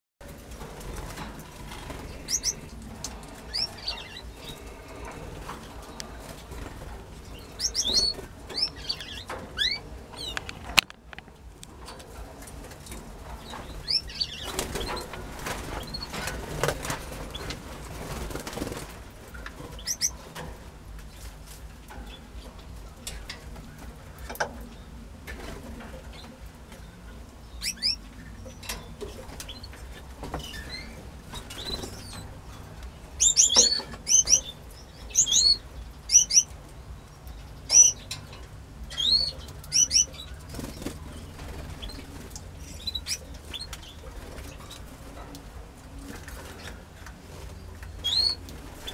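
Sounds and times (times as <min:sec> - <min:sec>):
canaries chirping: 0:00.6 - 0:10.8, 0:11.9 - 0:18.9, 0:19.5 - 0:20.5, 0:21.1 - 0:48.9
birds wings flapping: 0:14.4 - 0:20.0, 0:40.4 - 0:42.4.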